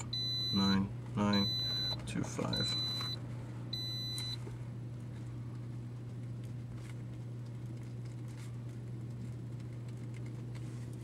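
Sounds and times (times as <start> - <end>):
steady low hum: 0.0 - 11.0
paper rustling: 6.4 - 11.0.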